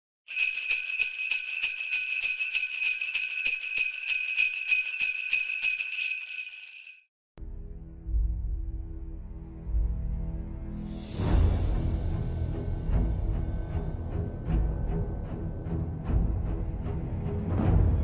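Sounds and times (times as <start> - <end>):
jingle bells shaken: 0.3 - 7.1.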